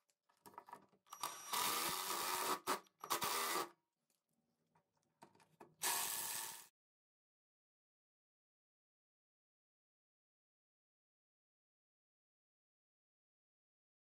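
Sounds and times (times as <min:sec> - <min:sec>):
cordless driver spinning screws: 0:01.1 - 0:03.7.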